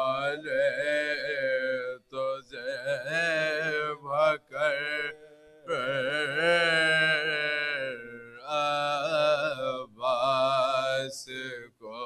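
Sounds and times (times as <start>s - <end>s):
male voices chanting in chorus: 3.0s - 11.5s.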